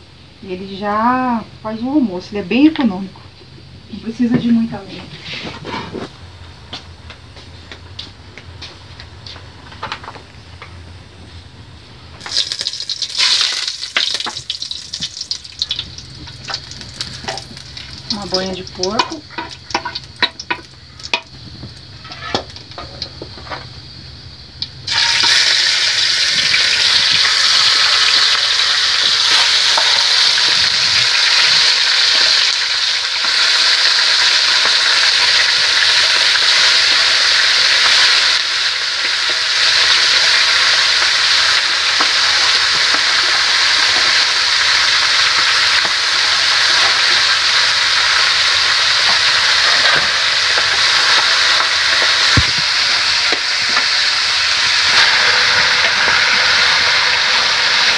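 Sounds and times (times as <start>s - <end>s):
chicken sizzling in hot fat: 3.6s - 57.9s.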